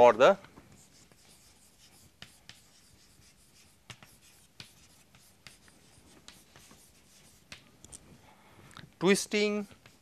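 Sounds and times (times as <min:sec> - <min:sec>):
chalk scratching on chalkboard: 0:00.7 - 0:07.7, 0:09.6 - 0:10.0
chalk tapping on board: 0:00.7 - 0:07.7, 0:09.6 - 0:10.0.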